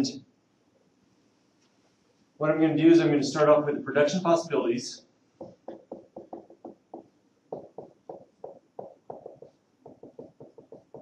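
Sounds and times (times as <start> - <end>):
marker squeaking on whiteboard: 5.4 - 11.0.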